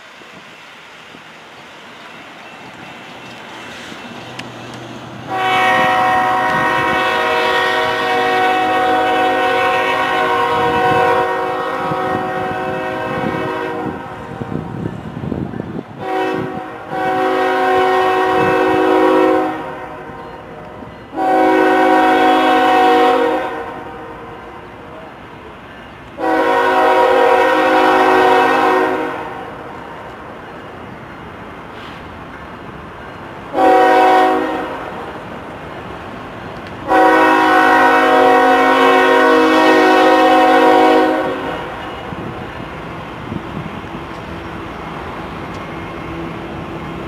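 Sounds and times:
low train rumble: 0.0 - 47.0
locomotive air horn blasts: 5.3 - 14.6, 16.0 - 20.5, 21.1 - 24.6, 26.2 - 29.7, 33.5 - 35.0, 36.8 - 42.3.

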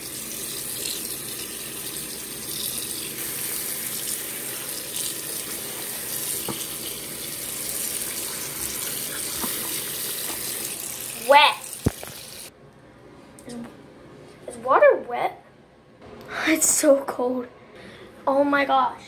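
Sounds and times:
faucet water splashing on socks: 0.0 - 12.5.

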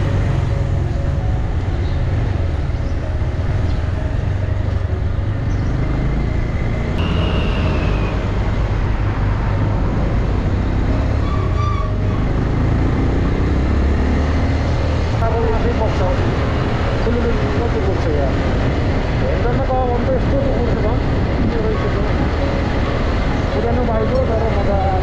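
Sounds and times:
faint traffic tones: 0.0 - 13.4
road and wind rumble: 0.0 - 25.0.

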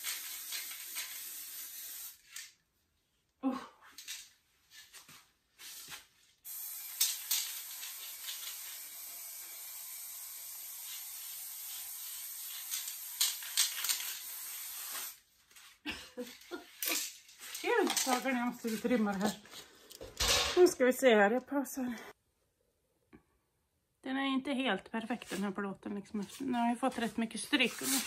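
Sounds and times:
spray-paint can hissing: 0.0 - 2.5, 6.5 - 15.2.

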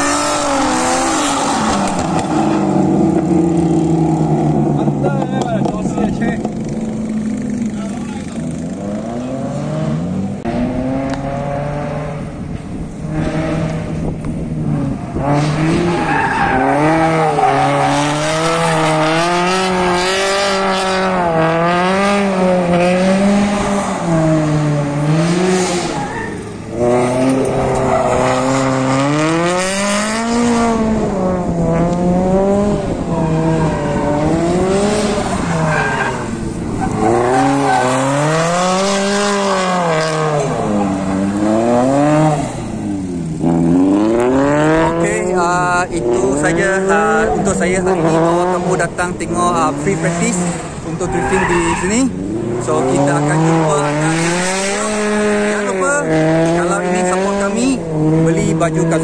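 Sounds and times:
car engine revving: 0.0 - 59.0
tyres squealing: 49.5 - 54.2.

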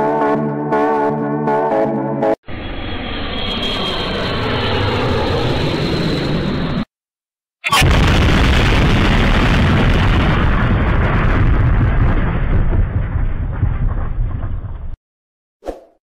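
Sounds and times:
explosion crack and rumble: 7.7 - 15.0.

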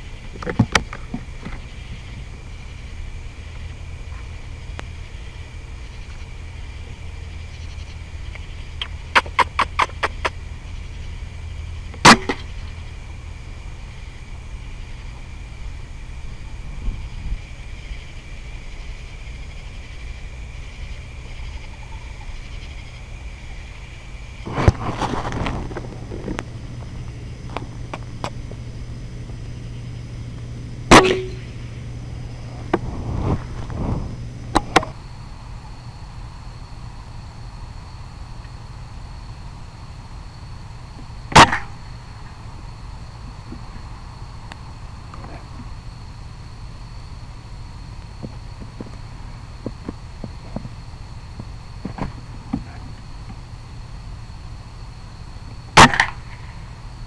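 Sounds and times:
steady low hum: 0.0 - 57.0
air rifle shot: 12.0 - 12.5, 30.9 - 31.4, 41.3 - 41.7, 55.8 - 56.4
air rifle shot crack: 55.8 - 56.4.

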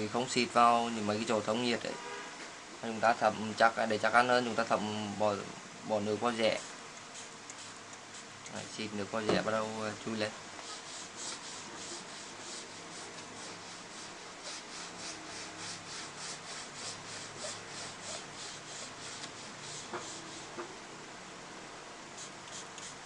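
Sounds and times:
cloth rubbing on plastic: 10.6 - 20.5.

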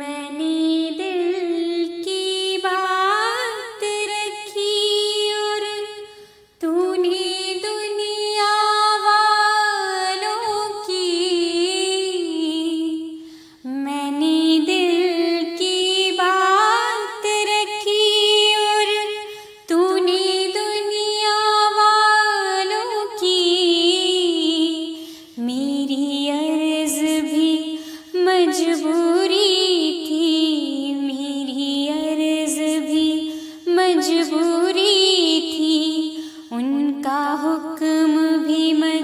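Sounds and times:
woman singing unaccompanied: 0.0 - 39.0.

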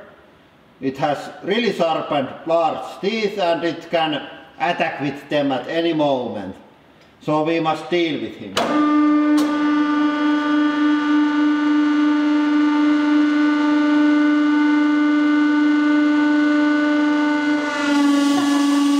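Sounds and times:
hydraulic press pump tone: 8.5 - 11.7, 17.3 - 18.9.

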